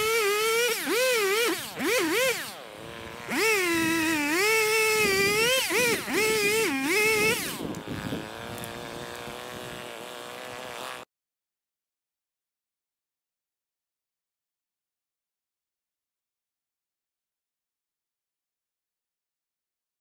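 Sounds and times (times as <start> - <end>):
chainsaw revving and cutting: 0.0 - 11.1.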